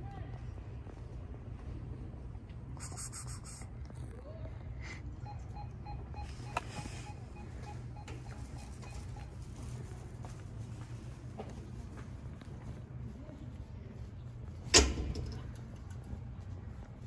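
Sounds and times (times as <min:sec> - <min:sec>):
low background hum: 0:00.0 - 0:17.0
faint rapid beeps: 0:05.1 - 0:10.0.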